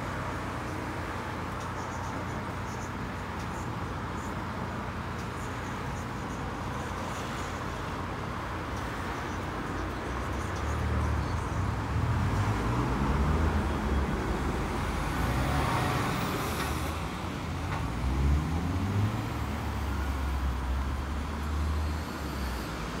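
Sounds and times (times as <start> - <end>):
traffic hiss: 0.0 - 23.0
engines accelerating: 7.0 - 23.0.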